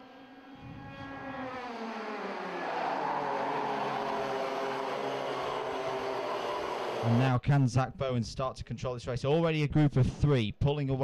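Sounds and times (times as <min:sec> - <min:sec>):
kart engines racing: 0:00.0 - 0:07.3.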